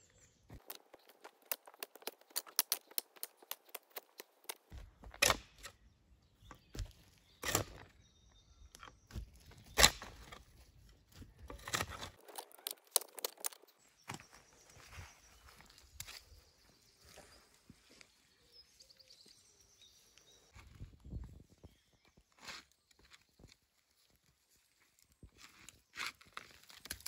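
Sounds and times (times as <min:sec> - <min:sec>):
tools clicking and scraping dirt: 0:00.5 - 0:14.2, 0:25.0 - 0:27.0
heavy tool strikes into ground: 0:04.7 - 0:05.7, 0:06.7 - 0:07.9, 0:09.1 - 0:10.4.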